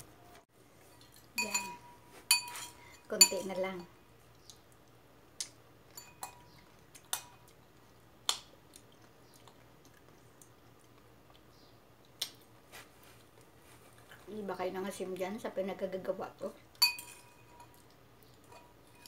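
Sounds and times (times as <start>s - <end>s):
fork clinking on ceramic bowl: 1.0s - 3.6s, 5.9s - 7.4s, 16.8s - 17.8s
quiet chewing: 4.2s - 5.6s, 6.4s - 14.3s, 17.6s - 18.8s.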